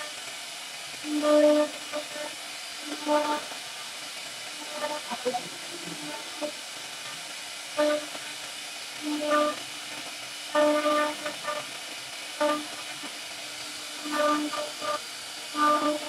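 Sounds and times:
router cutting wood with whine: 0:04.4 - 0:08.3, 0:10.6 - 0:11.7, 0:12.3 - 0:16.0.

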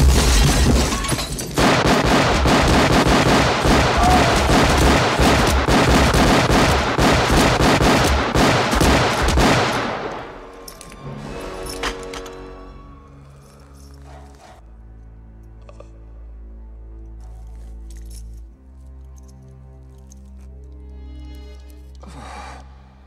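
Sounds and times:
rapid gunfire: 0:01.6 - 0:10.3.

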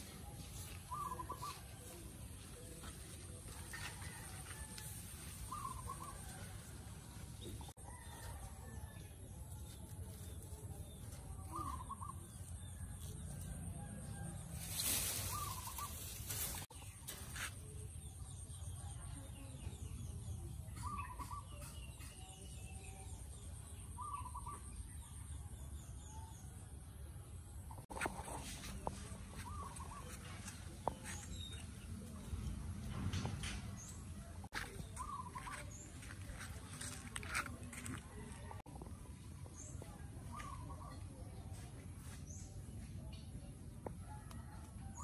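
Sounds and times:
rustling: 0:14.3 - 0:17.7.

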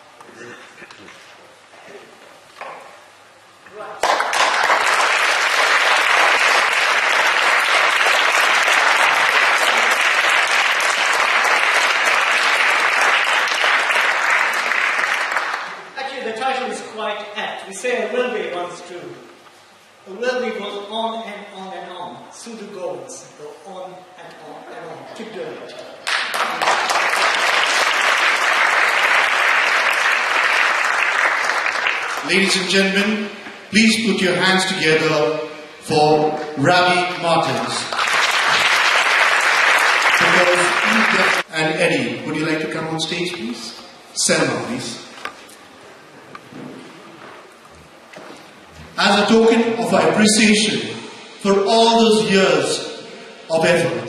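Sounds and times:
audience applauding: 0:04.0 - 0:15.9, 0:26.0 - 0:32.9, 0:37.5 - 0:41.5.

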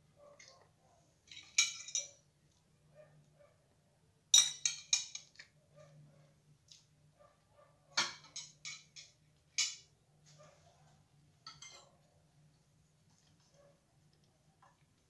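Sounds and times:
fork clinking on ceramic plate: 0:11.5 - 0:11.9.

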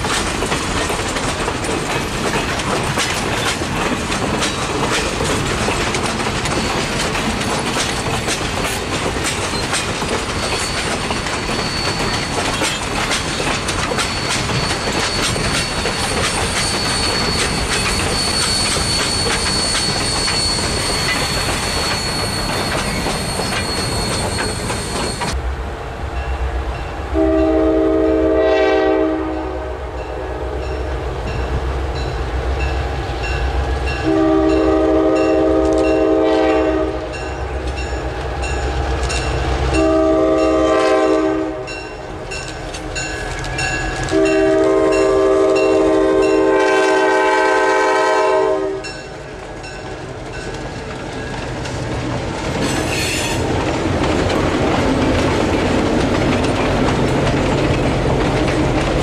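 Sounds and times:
train wheels clattering on rails: 0:00.0 - 0:25.4, 0:31.2 - 0:59.0
wheel squeal: 0:09.4 - 0:25.4, 0:52.6 - 0:53.5
locomotive air horn blowing: 0:27.2 - 0:30.7, 0:34.0 - 0:37.3, 0:39.7 - 0:41.8, 0:44.1 - 0:49.0.

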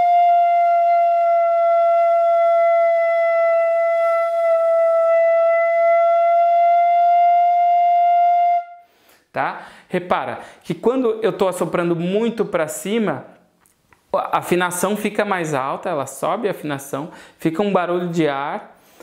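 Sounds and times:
fife long held note: 0:00.0 - 0:08.9
breath noise: 0:08.8 - 0:10.7, 0:17.1 - 0:17.4, 0:18.7 - 0:19.0.

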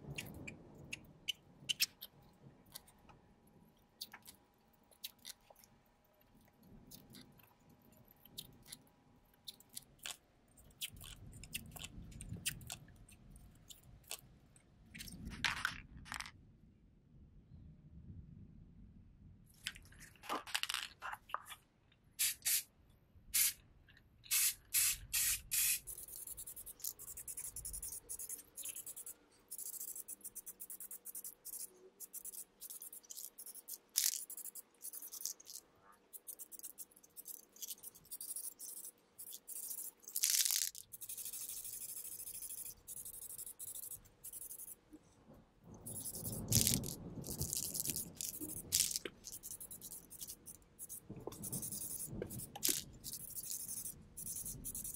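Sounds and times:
spray can hissing: 0:22.2 - 0:22.7, 0:23.4 - 0:23.6, 0:24.3 - 0:30.0.

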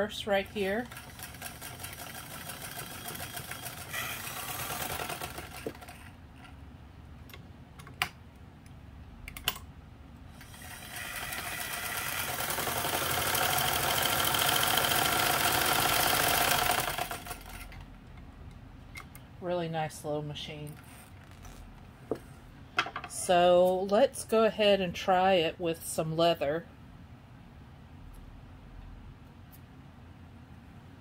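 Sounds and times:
sewing machine stitching: 0:00.3 - 0:06.2, 0:10.4 - 0:17.7.

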